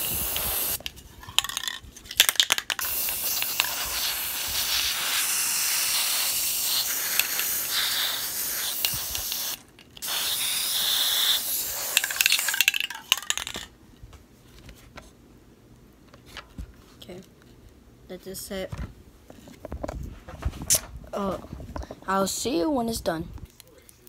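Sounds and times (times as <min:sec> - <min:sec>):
spray can hissing: 0:00.0 - 0:00.8, 0:02.7 - 0:13.2
spray can sputtering: 0:00.0 - 0:13.6.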